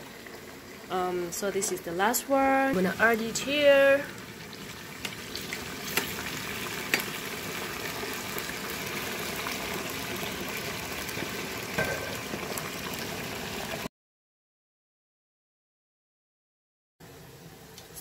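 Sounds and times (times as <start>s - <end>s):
potato chips deep-frying in oil: 0.0s - 13.9s.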